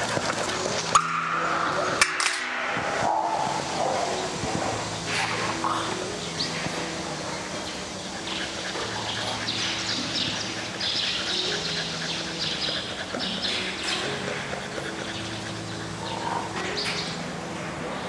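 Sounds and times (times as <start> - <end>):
dogs whining and yipping: 8.0 - 17.2.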